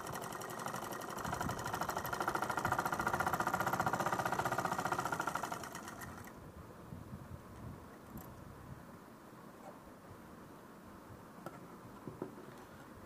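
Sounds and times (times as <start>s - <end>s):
sewing machine stitching: 0.0s - 6.3s.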